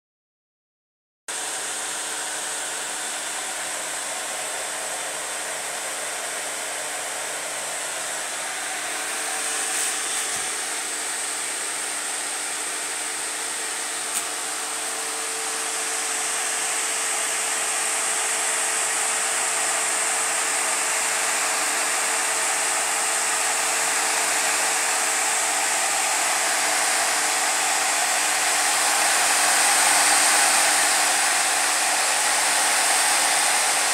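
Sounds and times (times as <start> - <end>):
small click: 14.1 - 14.3
cooling fans whooshing: 21.2 - 33.9.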